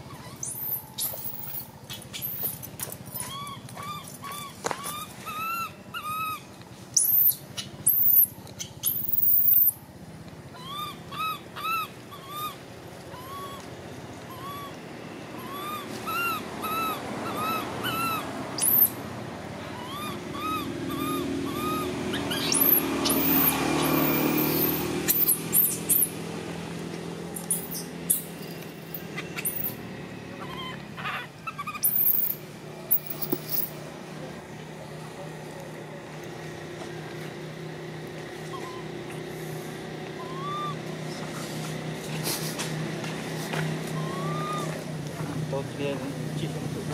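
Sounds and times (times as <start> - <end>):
baby monkey cooing: 0.0 - 9.8, 10.5 - 19.0, 19.7 - 26.2, 30.4 - 33.6, 40.2 - 40.9, 43.9 - 45.0
baby monkey shrill screams: 0.0 - 9.8, 10.5 - 13.7, 14.3 - 19.0, 19.8 - 26.2, 27.4 - 28.3, 29.4 - 29.8, 30.4 - 33.7, 40.2 - 40.8, 43.9 - 44.8.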